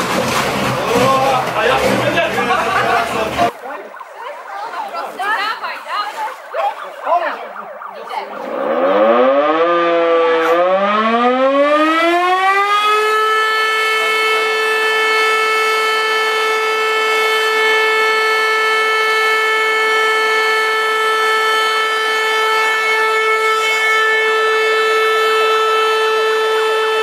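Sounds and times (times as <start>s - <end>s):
warning siren winding up: 6.4s - 27.0s.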